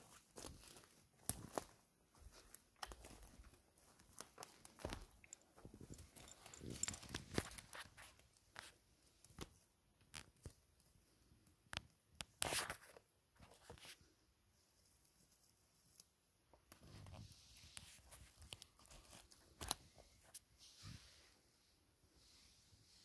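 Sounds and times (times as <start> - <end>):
footsteps on forest litter: 0.0 - 5.7.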